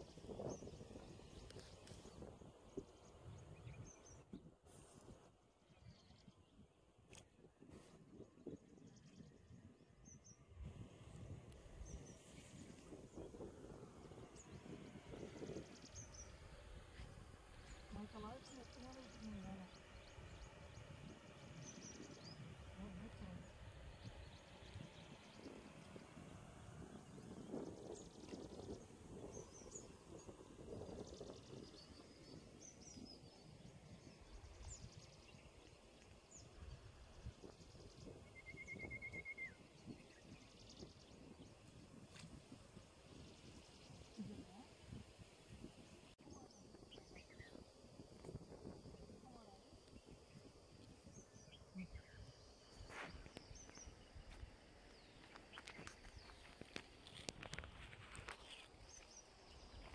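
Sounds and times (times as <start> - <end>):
small birds chirping: 0.0 - 59.9
soft rustle: 4.6 - 5.3, 52.7 - 59.9
low outdoor rumble: 10.3 - 38.3.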